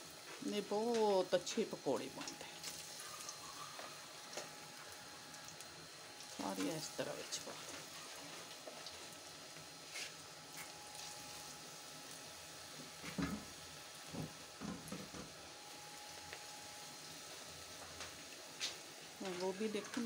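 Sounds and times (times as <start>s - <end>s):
food deep-frying in hot oil: 0.0s - 20.0s
batter dropping into oil: 13.0s - 15.4s.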